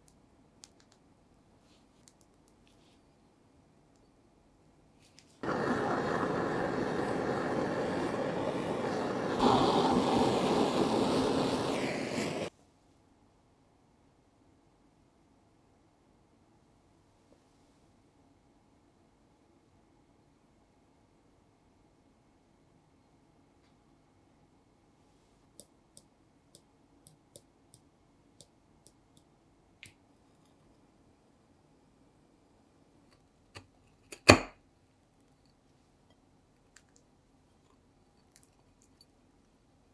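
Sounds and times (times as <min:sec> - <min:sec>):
blowtorch flame hissing: 0:05.4 - 0:12.5.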